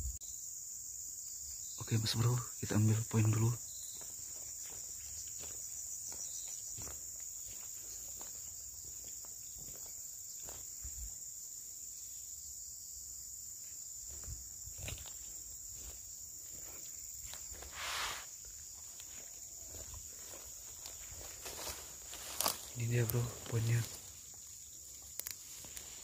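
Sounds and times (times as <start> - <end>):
insects droning: 0.0 - 26.0
footsteps through grass: 3.7 - 11.2, 13.6 - 26.0.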